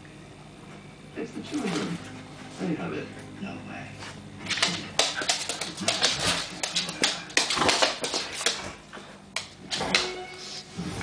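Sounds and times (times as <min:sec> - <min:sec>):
dogs scuffling: 0:04.0 - 0:10.2
paws clicking on wooden floor: 0:04.5 - 0:10.1.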